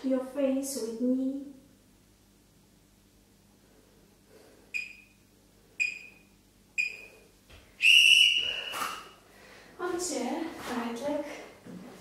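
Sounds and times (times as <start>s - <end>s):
long loud timer beep: 4.8s - 5.2s, 5.8s - 7.2s
short timer beeps: 4.8s - 5.2s, 5.8s - 7.1s.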